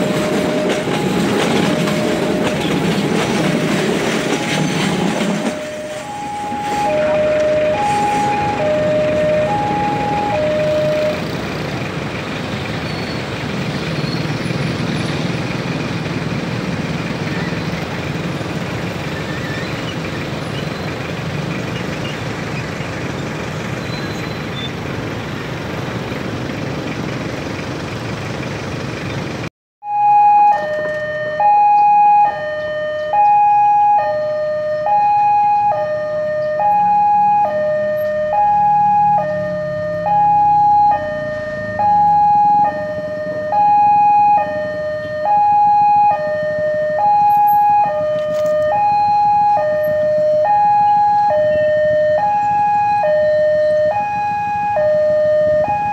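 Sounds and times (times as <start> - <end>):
level crossing two-tone alarm: 0.0 - 3.2, 3.8 - 11.3, 29.8 - 55.9.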